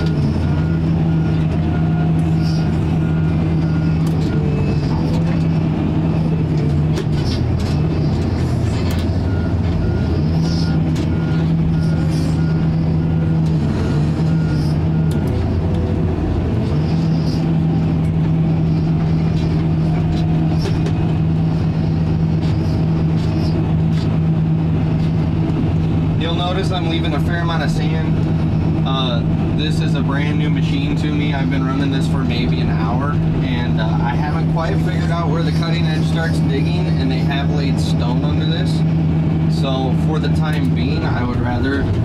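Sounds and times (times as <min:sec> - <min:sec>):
backup alarm beeping: 0:00.0 - 0:23.2
diesel engine running: 0:00.0 - 0:42.0.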